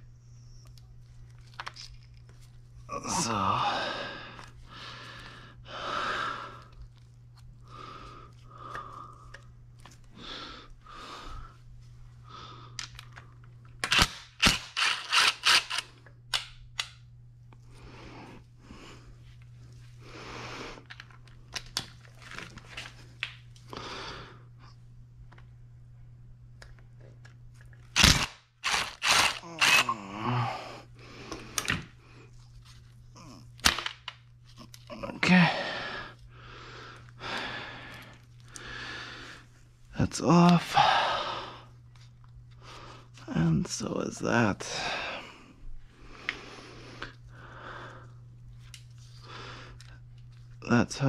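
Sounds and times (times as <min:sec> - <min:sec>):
socket ratchet clicking: 0:13.8 - 0:17.0.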